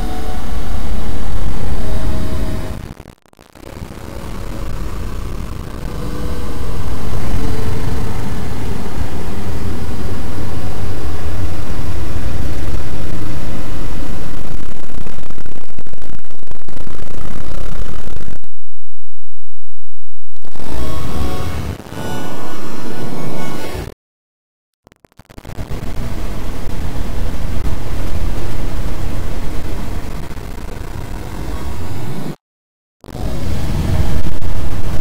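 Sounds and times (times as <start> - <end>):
dense rumbling noise music: 0.0 - 17.7, 25.4 - 31.0, 33.2 - 35.0.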